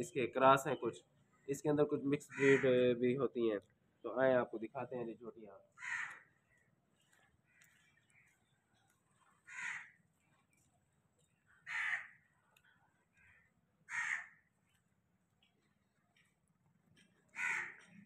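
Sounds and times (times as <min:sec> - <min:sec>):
crow cawing: 0:02.2 - 0:02.8, 0:05.7 - 0:06.6, 0:09.4 - 0:10.0, 0:11.6 - 0:12.3, 0:13.1 - 0:14.5, 0:17.3 - 0:18.0.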